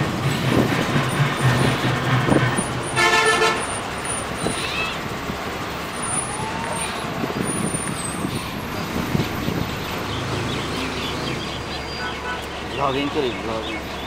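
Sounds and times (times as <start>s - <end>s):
bus engine and road rumble: 0.0s - 14.0s
short horn honk: 3.0s - 3.6s.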